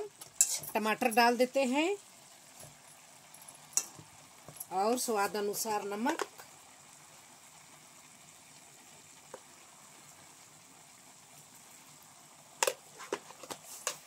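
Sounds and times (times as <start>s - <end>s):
vegetables sizzling in a pan: 0.0s - 14.0s
steel utensil clacking on pan: 0.4s - 0.7s, 3.7s - 4.0s.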